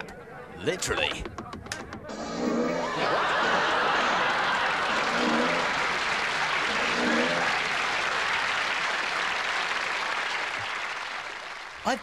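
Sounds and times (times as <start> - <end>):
studio audience applause: 3.1 - 12.0.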